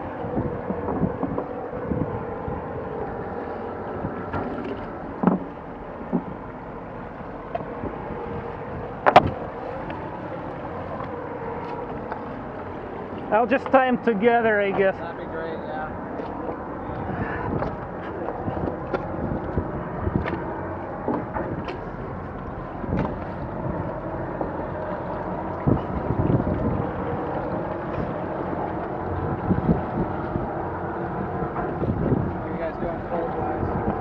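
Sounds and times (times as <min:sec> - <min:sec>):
wind buffeting microphone: 0:00.0 - 0:34.0
knocks and clicks of ropes: 0:04.3 - 0:06.4.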